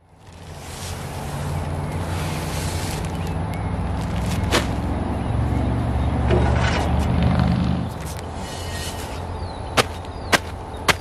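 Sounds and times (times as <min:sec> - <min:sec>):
heavy bag thumping onto grass: 0:04.0 - 0:04.9.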